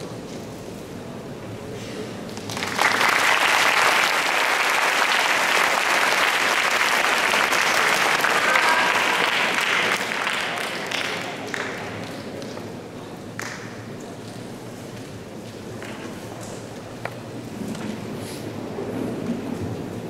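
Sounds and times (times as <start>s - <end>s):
audience applause: 2.3s - 12.4s.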